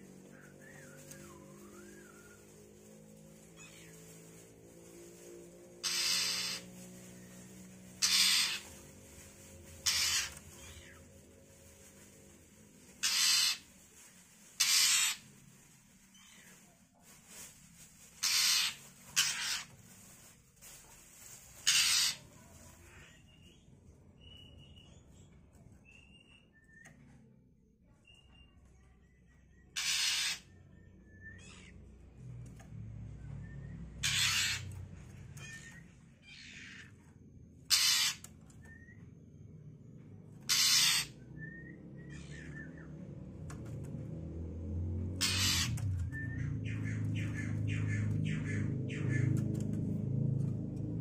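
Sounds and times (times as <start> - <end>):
faint whistled bird notes: 0.4 - 2.5, 23.1 - 29.8, 41.2 - 43.0, 45.8 - 47.9
bird harsh raspy calls: 3.5 - 4.0, 5.8 - 8.9, 9.8 - 11.1, 13.0 - 13.7, 14.6 - 15.4, 18.2 - 19.8, 21.6 - 23.4, 29.7 - 31.8, 34.0 - 34.8, 35.4 - 37.0, 37.6 - 39.0, 40.4 - 42.9, 45.2 - 49.4.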